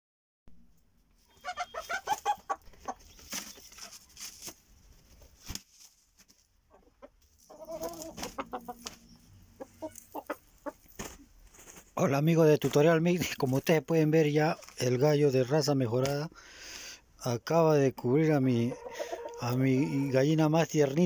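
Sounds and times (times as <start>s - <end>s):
chickens clucking: 1.2s - 5.6s, 6.3s - 11.9s, 18.0s - 21.0s
scuffling noises: 2.8s - 6.6s, 7.3s - 9.1s, 9.8s - 13.8s.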